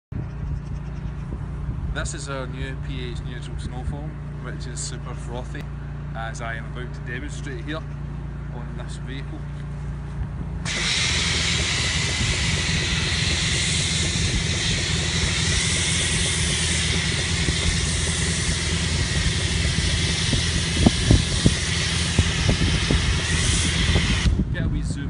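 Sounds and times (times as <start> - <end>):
low rumble: 0.1 - 25.0
foam lance spraying hiss: 10.7 - 24.4.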